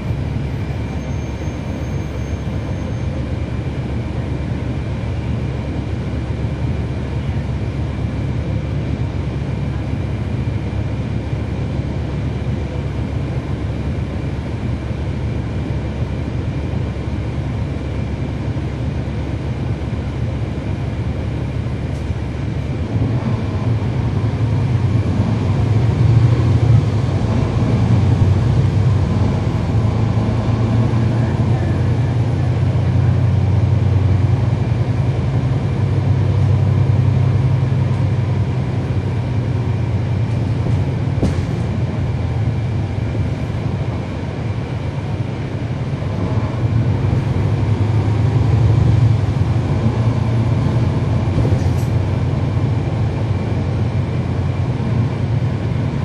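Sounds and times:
bus diesel engine drone: 0:00.0 - 0:56.0.

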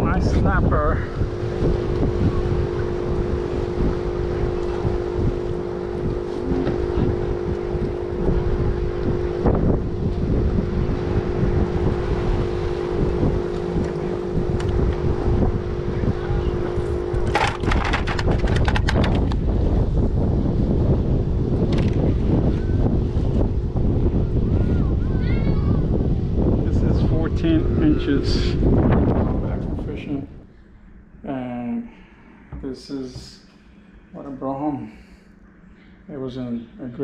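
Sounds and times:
wind buffeting microphone: 0:00.0 - 0:31.2
steady mechanical hum: 0:00.0 - 0:37.0
sharp clicks and knocks: 0:17.2 - 0:19.4.

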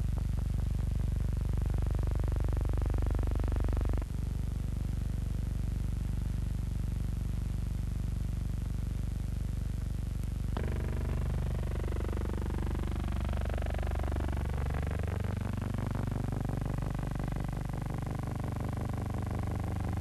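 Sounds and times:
engine drone with pulsing beat: 0:00.0 - 0:04.1, 0:10.6 - 0:20.0.

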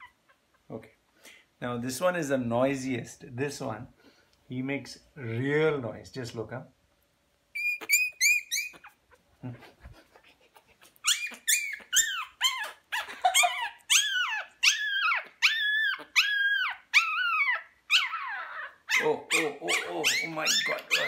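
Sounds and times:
puppy squealing: 0:00.0 - 0:00.6, 0:07.5 - 0:09.2, 0:10.2 - 0:21.0.

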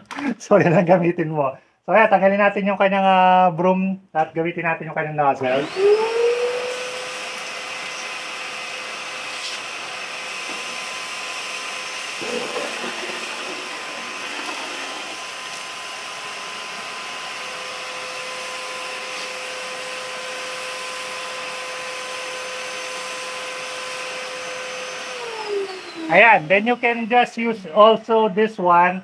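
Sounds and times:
shop vacuum running: 0:05.4 - 0:28.4.

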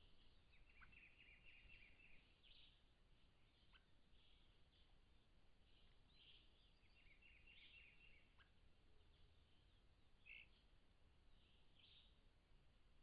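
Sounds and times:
faint bird calls: 0:00.0 - 0:02.8, 0:03.4 - 0:04.9, 0:05.7 - 0:10.7.

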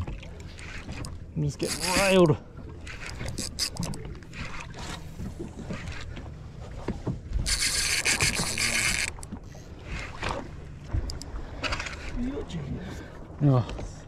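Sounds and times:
reel ticking: 0:00.2 - 0:06.3, 0:07.3 - 0:10.3, 0:11.0 - 0:12.2
fishing reel drag buzzing: 0:00.6 - 0:05.0, 0:07.4 - 0:09.3.

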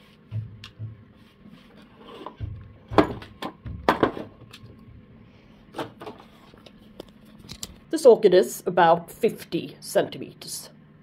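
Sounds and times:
sharp knocks on wood: 0:02.4 - 0:04.3.

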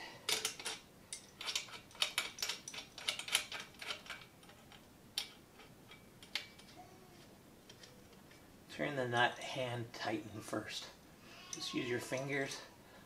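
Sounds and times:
small metal hardware clicking: 0:00.3 - 0:06.8.

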